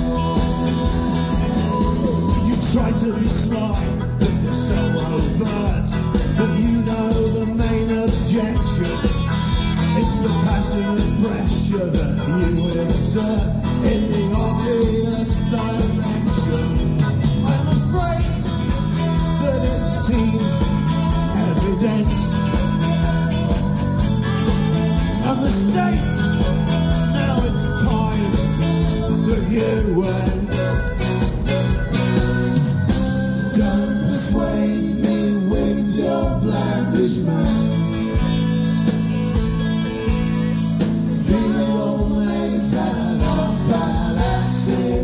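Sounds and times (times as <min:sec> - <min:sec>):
bass notes: 0:00.0 - 0:45.0
drums: 0:00.0 - 0:45.0
electric guitars: 0:00.0 - 0:45.0.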